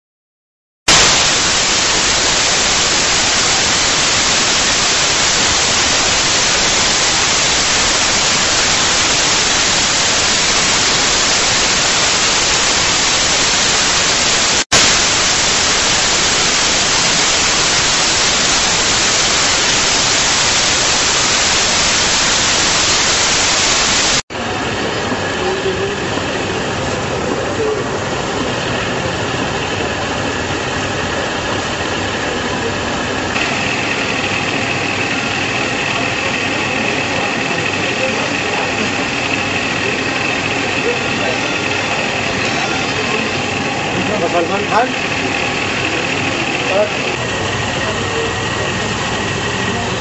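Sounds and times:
static hiss: 0.9s - 24.2s, 33.3s - 47.4s.

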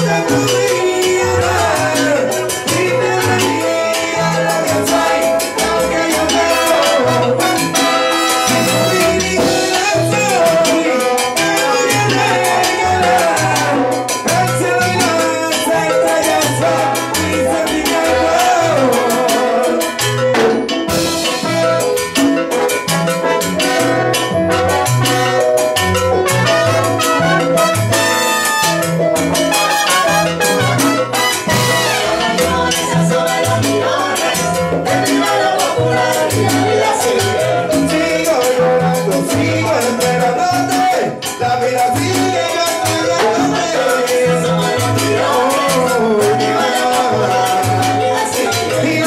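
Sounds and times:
live salsa band: 0.0s - 49.0s
trombones and trumpets: 4.8s - 14.3s, 17.9s - 33.3s
brass horns holding notes: 6.3s - 9.8s, 22.9s - 32.7s.

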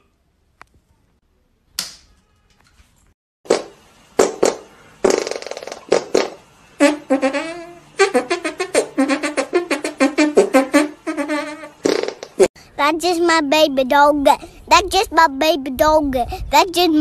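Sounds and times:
brass music: 6.8s - 11.8s.

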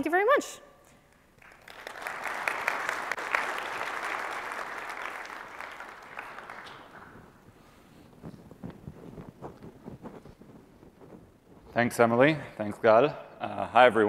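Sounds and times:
audience applauding: 1.4s - 7.4s.

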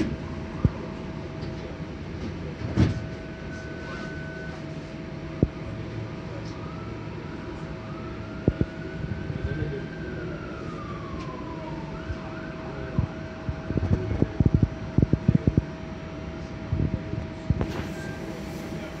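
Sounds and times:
distant emergency siren wailing: 0.0s - 1.2s, 2.9s - 14.6s
streetcar humming: 0.0s - 19.0s.

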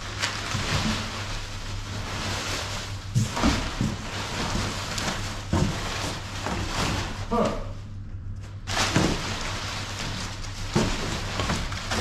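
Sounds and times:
packing paper rustling: 0.0s - 7.7s, 8.4s - 12.0s
steady low hum: 0.0s - 12.0s
bumps in cardboard box: 3.0s - 7.4s, 8.7s - 12.0s.

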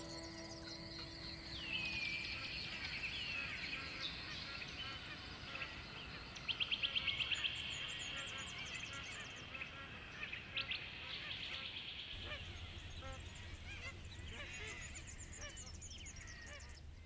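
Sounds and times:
high bird chirps: 0.0s - 4.6s
geese honking: 0.0s - 5.9s, 12.2s - 17.0s.

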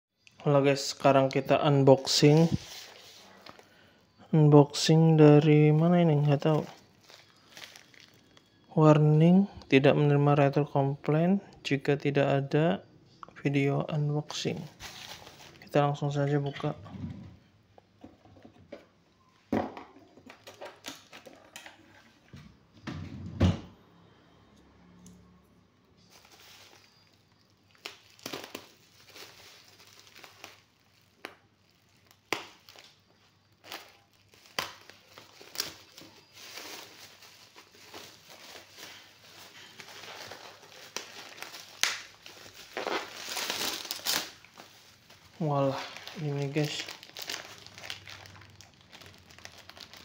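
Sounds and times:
plastic mailing bag crinkling: 1.9s - 4.0s, 4.7s - 8.8s, 14.4s - 16.8s, 26.0s - 50.0s.

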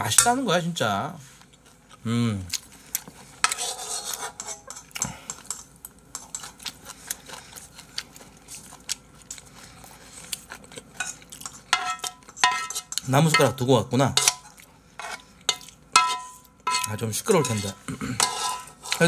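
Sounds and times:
spoons clinking on pan and bowl: 11.0s - 14.5s, 15.5s - 19.0s.

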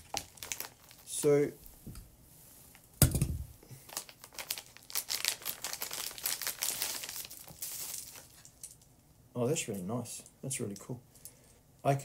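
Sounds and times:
plastic bag crinkling: 0.0s - 1.4s, 3.7s - 8.9s.

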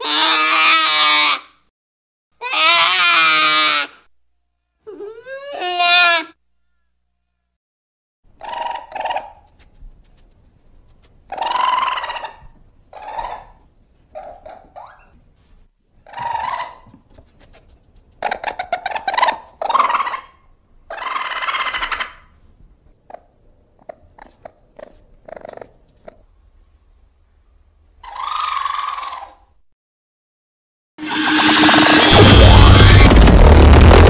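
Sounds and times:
squeaky creature cries and chirps: 2.4s - 4.0s.

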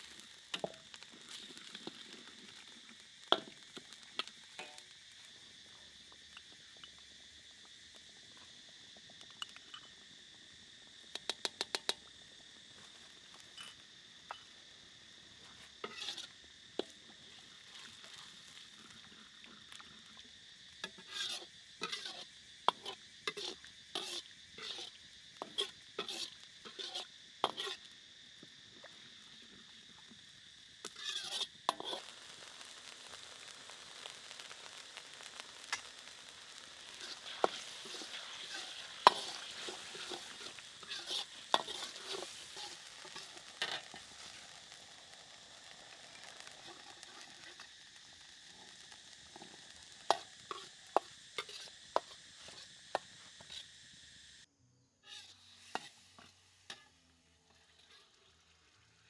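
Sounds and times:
sauce sizzling: 0.0s - 54.5s
ladle scraping metal wok: 15.8s - 16.3s, 20.9s - 27.8s, 30.9s - 32.0s, 36.9s - 44.6s, 49.3s - 53.6s, 55.1s - 56.9s.

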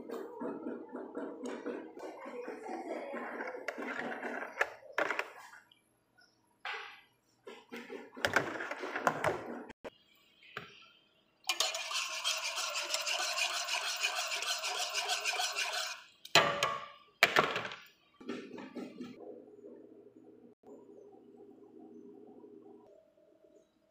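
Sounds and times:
whisk scraping metal pot: 11.5s - 16.1s.

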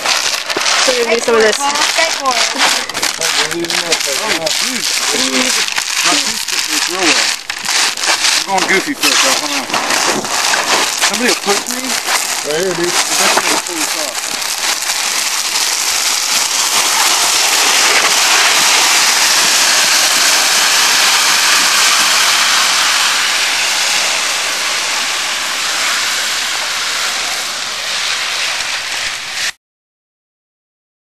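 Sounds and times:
air rushing: 0.0s - 29.6s
sled scraping over snow: 0.0s - 29.6s.

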